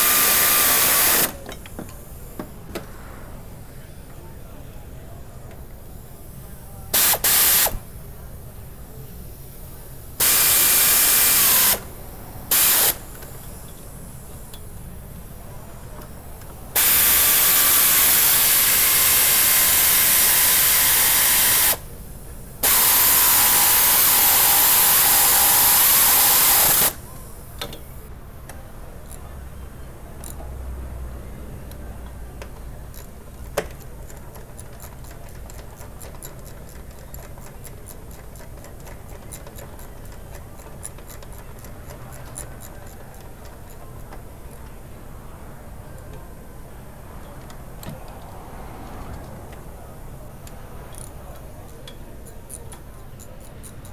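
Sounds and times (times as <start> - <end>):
compressed air hissing: 0.0 - 3.5, 6.2 - 8.0, 9.1 - 15.4, 16.7 - 28.1
steady whine: 0.0 - 28.1
hand tools clicking: 32.4 - 44.7, 50.4 - 53.9.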